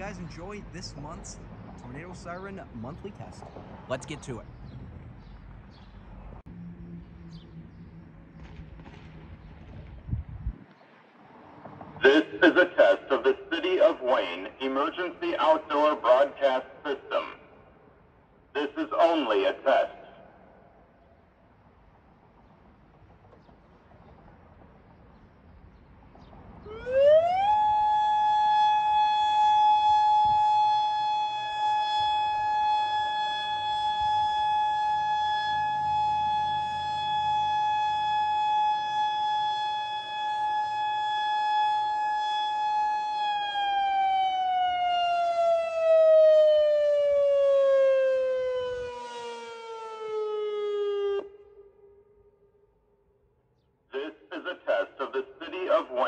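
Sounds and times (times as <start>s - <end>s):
warning siren tone: 26.6s - 52.6s.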